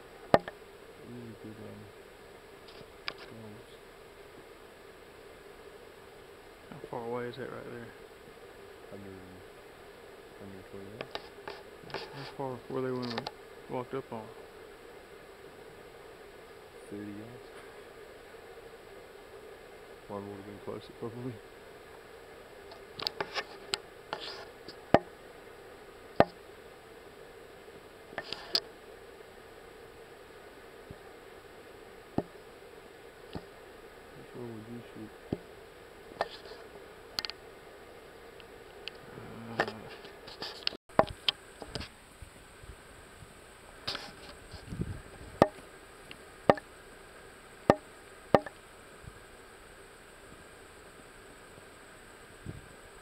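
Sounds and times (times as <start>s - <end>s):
faint steady hiss: 0.0s - 53.0s
soft rustle: 10.4s - 14.5s, 20.1s - 25.0s, 36.2s - 46.3s.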